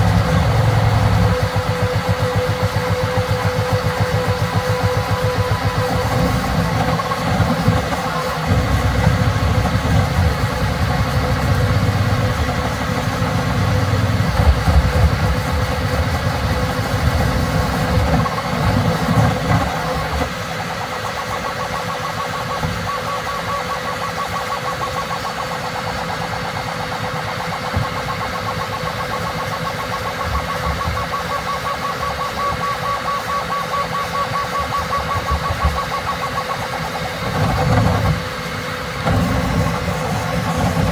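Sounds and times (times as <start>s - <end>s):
pulsing whine: 0.0s - 40.9s.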